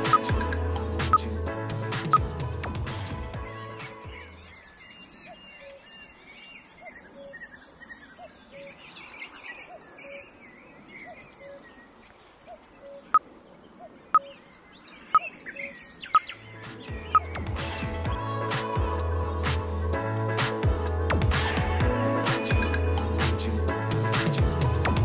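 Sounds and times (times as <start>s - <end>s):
birds chirping and singing: 3.3s - 18.4s.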